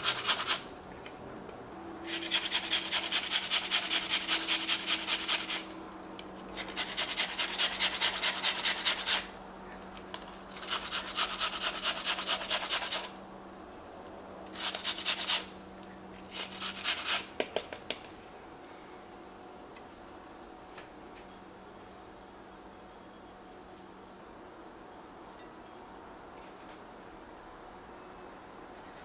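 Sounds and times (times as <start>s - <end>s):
onion scraping on metal grater: 0.0s - 0.6s, 2.1s - 5.7s, 6.5s - 9.3s, 10.5s - 13.1s, 14.5s - 15.5s, 16.3s - 17.3s.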